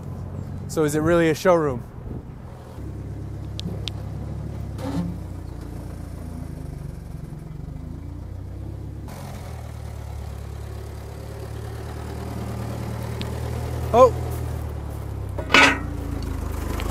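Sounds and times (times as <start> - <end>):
forklift engine running: 2.8 - 16.9
brief clunk: 15.4 - 16.0.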